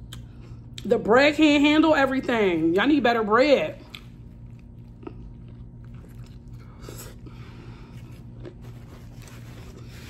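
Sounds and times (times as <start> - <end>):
steady low hum: 0.0 - 10.0
person chewing food: 3.8 - 10.0.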